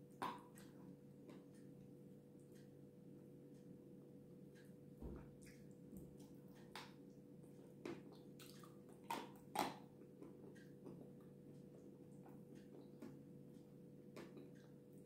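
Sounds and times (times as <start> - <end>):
faint steady hum: 0.0 - 15.0
wet mouth eating sounds: 7.8 - 9.9.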